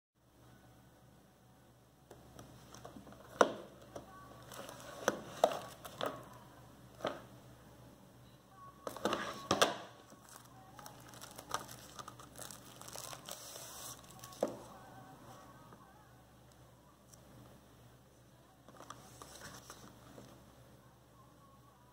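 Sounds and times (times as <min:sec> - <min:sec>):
cellophane crinkling and tearing: 0:04.4 - 0:06.1, 0:10.1 - 0:14.6.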